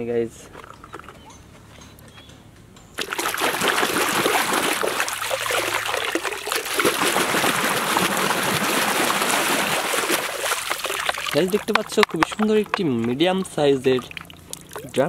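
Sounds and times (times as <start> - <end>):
running water splashing: 3.0 - 15.0.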